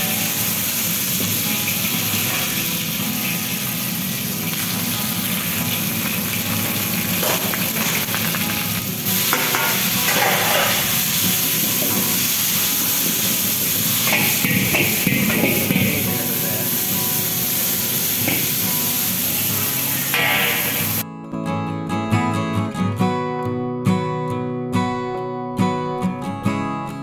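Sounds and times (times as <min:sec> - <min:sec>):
food sizzling in a wok: 0:00.0 - 0:21.0
metal spatula scraping wok: 0:09.2 - 0:11.2.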